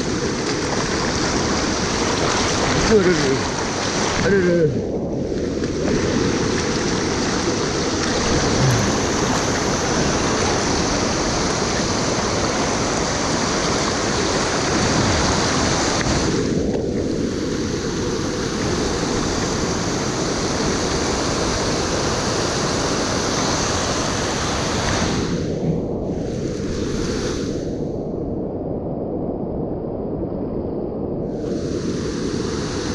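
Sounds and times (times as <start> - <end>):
river water rushing over rocks: 0.0 - 4.7, 5.6 - 16.5, 17.7 - 25.4.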